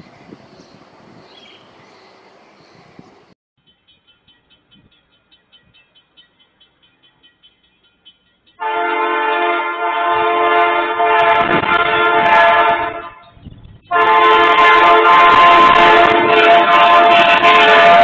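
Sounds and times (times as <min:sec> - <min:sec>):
train horn blasts: 0:08.6 - 0:18.0.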